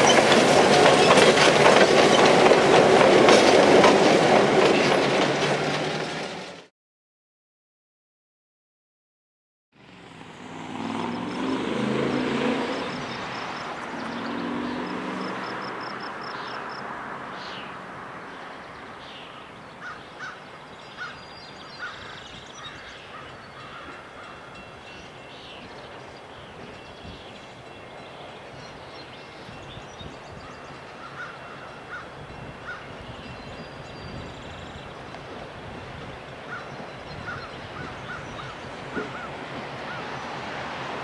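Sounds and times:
locomotive engine and rail rumble: 0:00.0 - 0:06.7, 0:11.2 - 0:41.0
birds chirping: 0:10.8 - 0:40.4.

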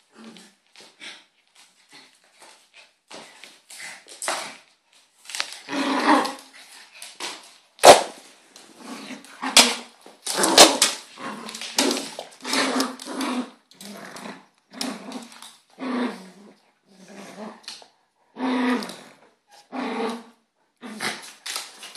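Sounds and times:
dogs growling and barking: 0:05.5 - 0:06.5, 0:08.8 - 0:21.6.

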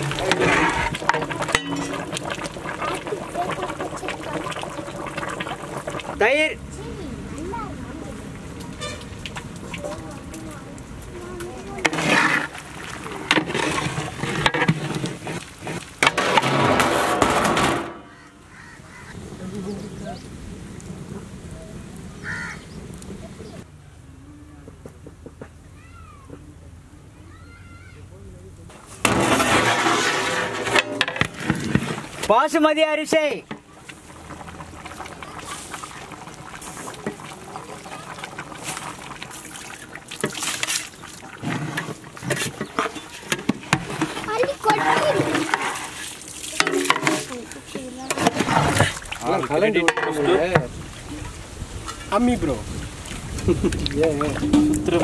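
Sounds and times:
ladle stirring a pot: 0:00.0 - 0:06.2, 0:10.9 - 0:18.2, 0:28.8 - 0:32.4, 0:33.4 - 0:52.1, 0:53.8 - 0:55.0
rice dropping into boiling gravy: 0:00.0 - 0:06.2, 0:33.4 - 0:50.7
curry bubbling and sizzling: 0:00.0 - 0:23.7, 0:28.7 - 0:55.0
ladle knocking on metal pot: 0:54.4 - 0:55.0.

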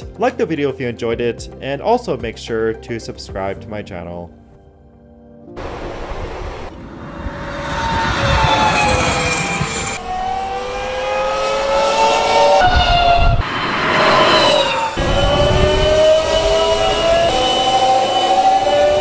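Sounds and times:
supercar whine driving past: 0:05.6 - 0:19.0.

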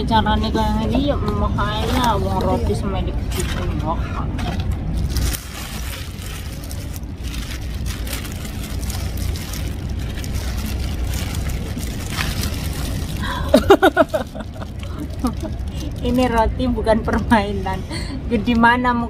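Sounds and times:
steady low rumble: 0:00.0 - 0:19.0
plastic bag crinkling: 0:04.8 - 0:16.3.

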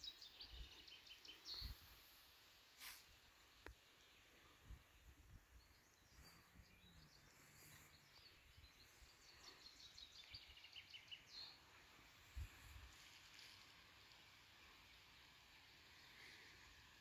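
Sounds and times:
distant birdsong: 0:00.0 - 0:17.0.

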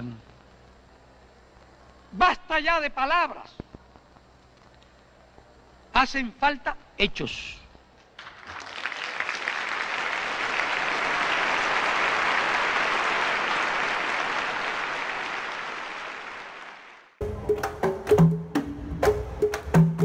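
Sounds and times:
audience applauding: 0:08.2 - 0:17.2.

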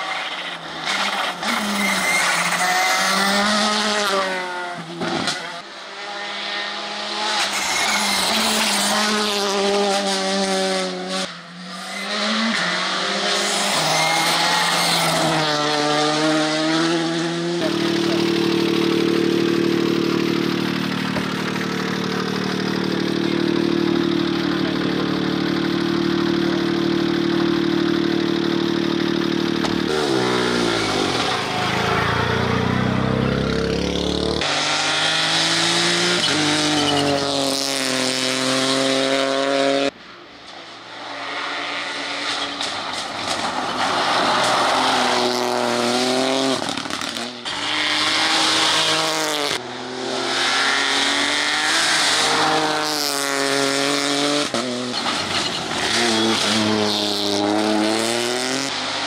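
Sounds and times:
car engine idling: 0:17.7 - 0:29.9.

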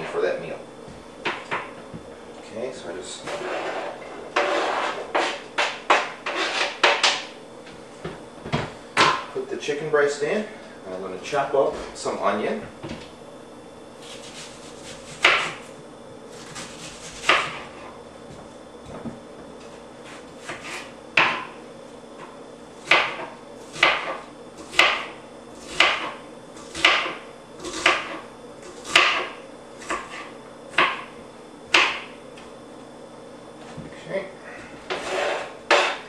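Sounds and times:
knife chopping on cutting board: 0:04.4 - 0:07.3, 0:14.0 - 0:15.7, 0:16.4 - 0:17.7, 0:20.1 - 0:21.5, 0:22.8 - 0:31.1, 0:31.7 - 0:32.1, 0:34.9 - 0:36.0.

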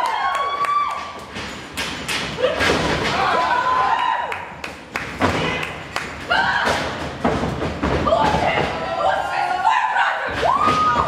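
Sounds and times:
thuds and knocks in wrestling ring: 0:01.4 - 0:03.5, 0:06.5 - 0:09.0.

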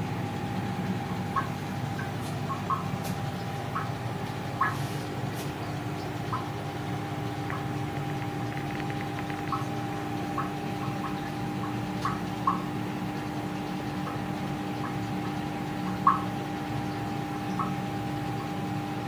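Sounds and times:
aquarium pump humming: 0:00.0 - 0:19.0
water plinks and bubble pops: 0:07.3 - 0:12.7.

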